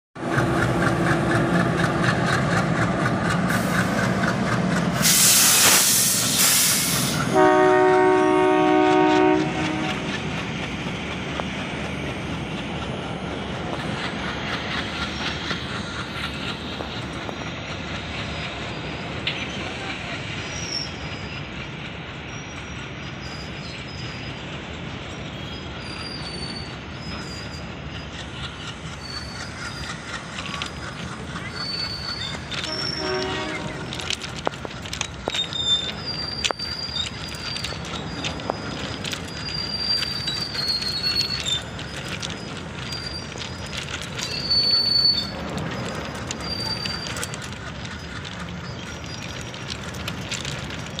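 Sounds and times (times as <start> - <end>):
diesel locomotive running: 0.2 - 51.0
wagons rumbling and wheel clatter: 0.2 - 51.0
locomotive hiss: 1.7 - 51.0
train horn: 7.2 - 10.2, 32.6 - 34.2.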